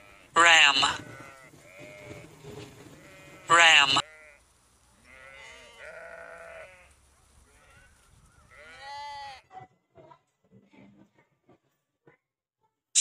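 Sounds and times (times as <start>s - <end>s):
sheep bleating: 0.0s - 2.4s, 3.0s - 4.4s, 5.0s - 7.9s, 8.5s - 9.6s.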